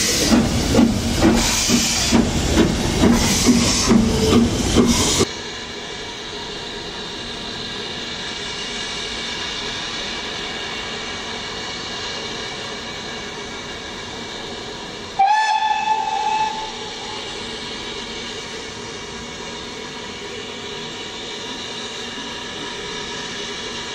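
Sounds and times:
steam hissing: 0:00.0 - 0:23.9
steam locomotive whistle: 0:15.2 - 0:17.5.

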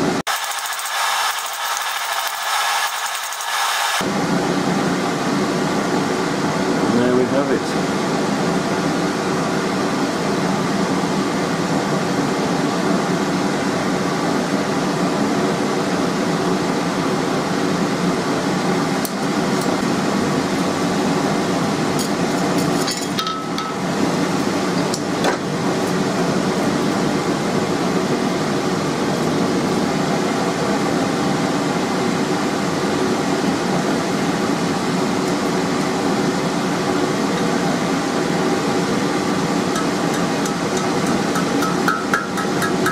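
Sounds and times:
electric air blower drone: 0:00.0 - 0:22.3.

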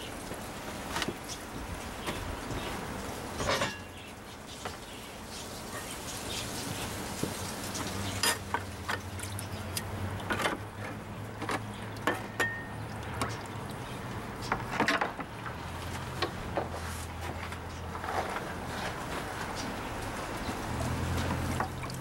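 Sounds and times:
water sloshing in plastic tub: 0:00.1 - 0:22.0.

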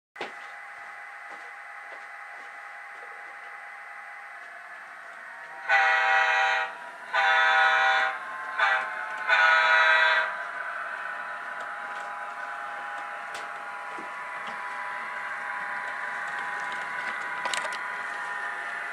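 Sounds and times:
model locomotive diesel idle: 0:00.4 - 0:18.9
multi-tone air horn: 0:05.5 - 0:10.3.

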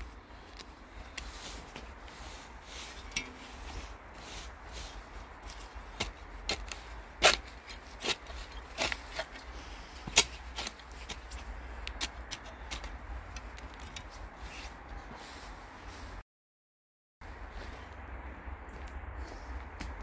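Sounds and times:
shovel scraping dry soil: 0:01.1 - 0:16.2.

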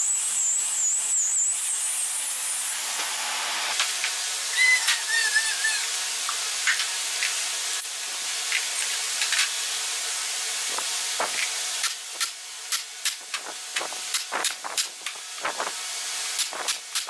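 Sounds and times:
compressed air hissing: 0:02.0 - 0:06.7, 0:10.7 - 0:17.0.

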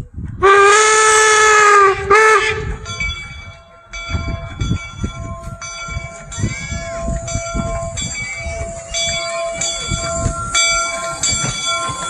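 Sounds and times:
locomotive engine rumble: 0:00.0 - 0:12.0
steam whistle blasts: 0:00.4 - 0:03.6
ringing tones: 0:02.4 - 0:12.0.

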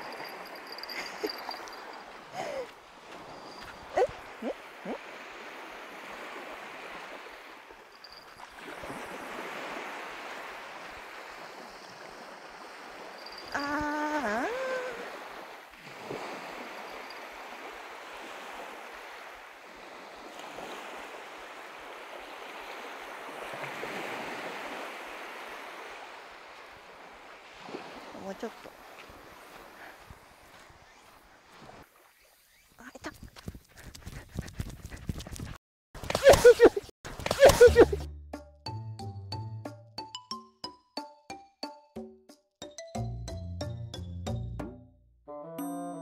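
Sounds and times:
small waves washing on shore: 0:00.0 - 0:32.5
call with dipping pitch: 0:36.1 - 0:38.1.

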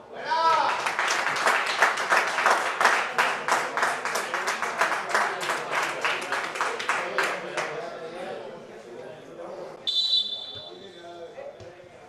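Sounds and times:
spectators clapping: 0:00.4 - 0:07.8.

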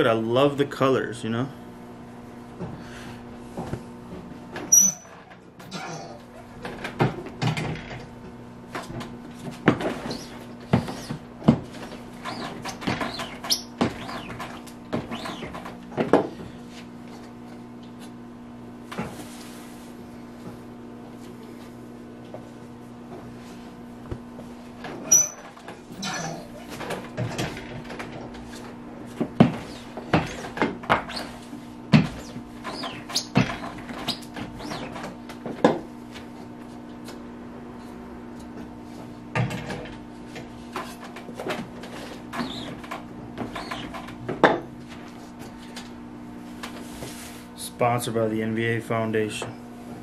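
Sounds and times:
electrical hum of machinery: 0:00.0 - 0:50.0
squeegee scraping: 0:09.9 - 0:15.7, 0:32.1 - 0:35.0.

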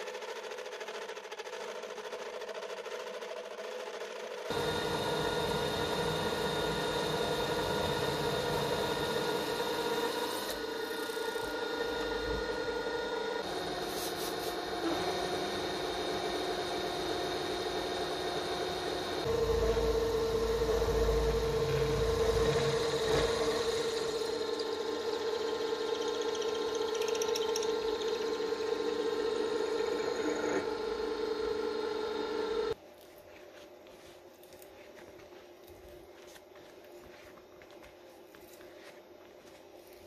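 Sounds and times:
milling machine cutting metal: 0:04.5 - 0:32.8.

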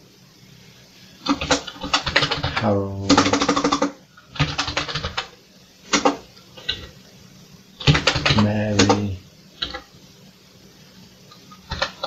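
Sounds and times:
person speaking: 0:02.5 - 0:03.6, 0:08.2 - 0:09.2
keyboard keys clicking: 0:07.8 - 0:09.0.

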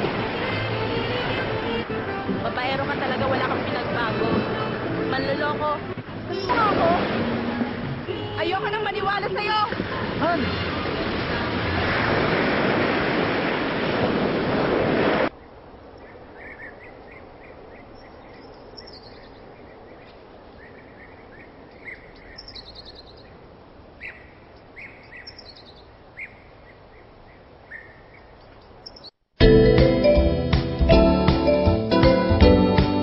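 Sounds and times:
small birds chirping: 0:15.4 - 0:23.4, 0:24.0 - 0:29.2.

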